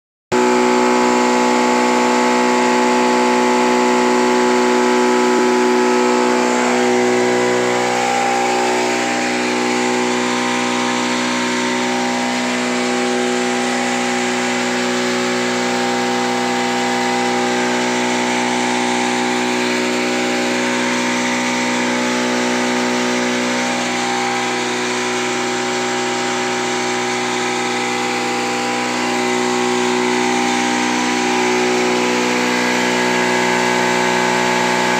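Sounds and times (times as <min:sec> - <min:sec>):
grinding machine humming: 0:00.3 - 0:34.9.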